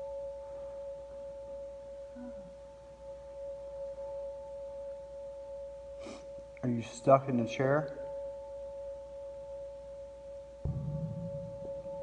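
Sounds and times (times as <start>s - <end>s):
faint low sound: 0.0s - 5.9s, 6.5s - 12.0s
steady electronic tone: 8.1s - 12.0s.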